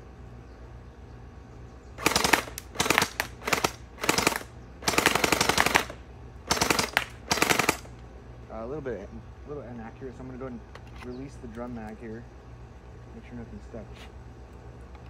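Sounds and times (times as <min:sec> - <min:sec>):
gel blaster rapid fire: 0:02.0 - 0:07.9.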